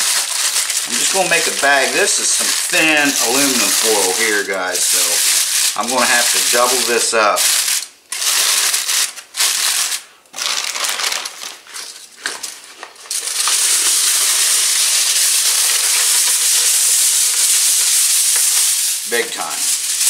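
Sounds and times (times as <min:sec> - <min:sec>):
aluminium foil crinkling: 0:00.0 - 0:20.0
steady high hiss: 0:00.8 - 0:07.9, 0:13.1 - 0:20.0.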